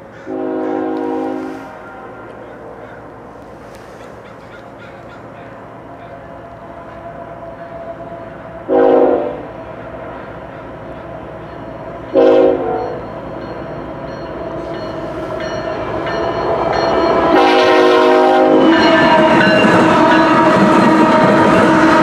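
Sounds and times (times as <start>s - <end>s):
train rumble: 0.0s - 22.0s
locomotive air horn blasts: 0.3s - 2.4s, 8.6s - 9.6s, 12.1s - 13.0s, 17.3s - 22.0s.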